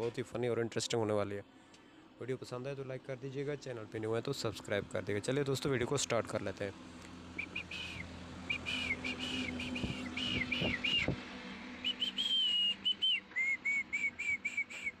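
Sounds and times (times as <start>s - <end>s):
short whistled notes: 7.4s - 11.2s, 11.8s - 15.0s.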